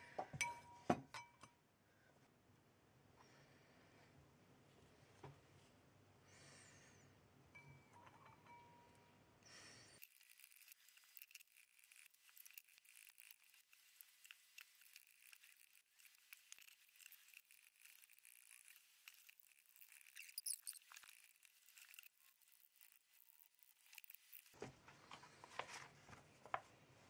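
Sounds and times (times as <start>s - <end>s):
fingers scraping ceramic bowl: 10.0s - 24.6s.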